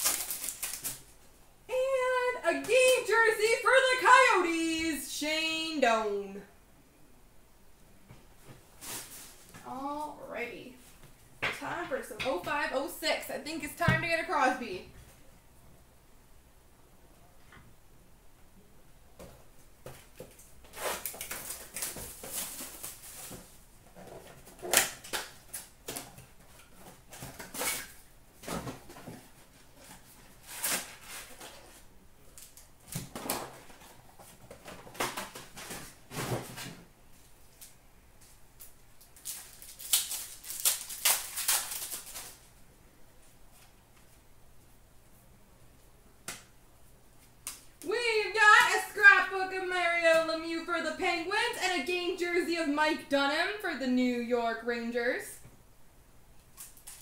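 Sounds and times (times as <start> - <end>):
foil packs crinkling and tearing: 0.0 - 1.2, 20.7 - 23.6, 39.0 - 42.4.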